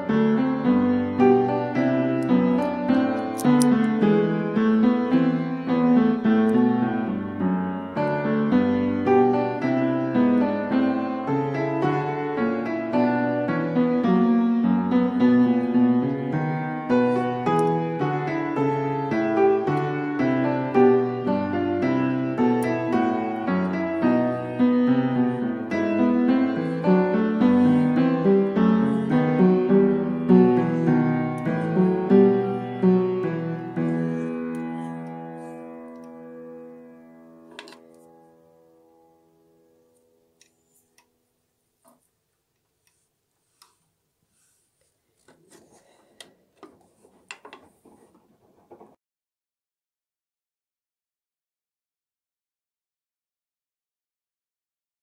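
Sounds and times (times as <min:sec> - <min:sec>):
piano music: 0:00.0 - 0:39.9.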